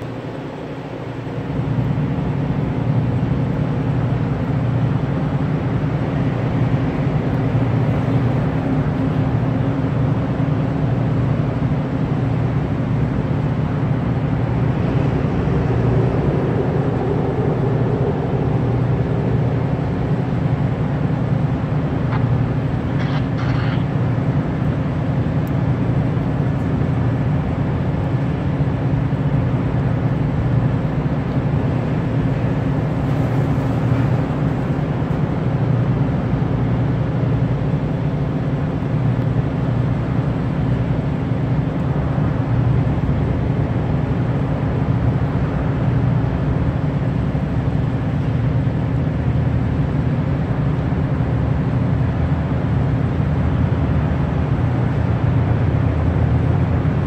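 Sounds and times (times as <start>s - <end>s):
diesel locomotive engine drone: 0.0s - 57.0s.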